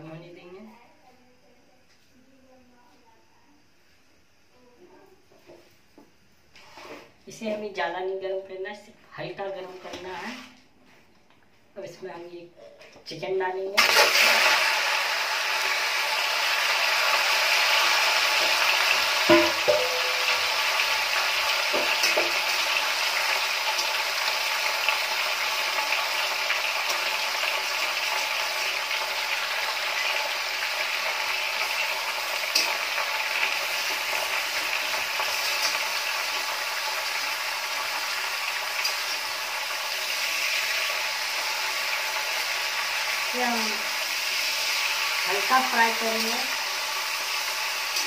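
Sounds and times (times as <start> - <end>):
chicken sizzling in hot oil: 13.8 - 48.0.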